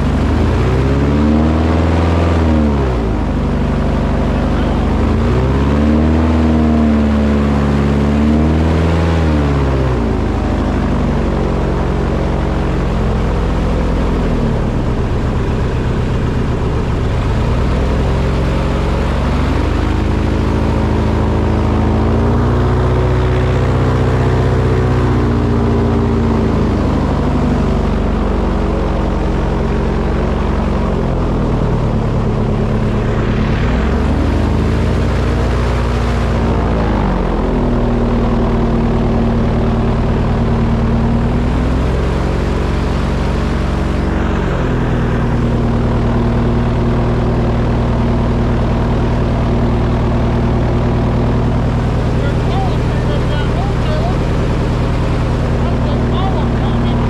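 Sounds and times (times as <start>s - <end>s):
engine revving: 0.0s - 57.0s.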